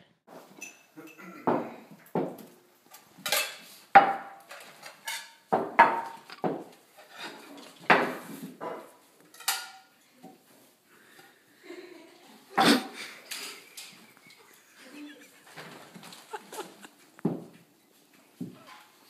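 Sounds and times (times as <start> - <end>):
plates clinking on a table: 3.2 - 10.0.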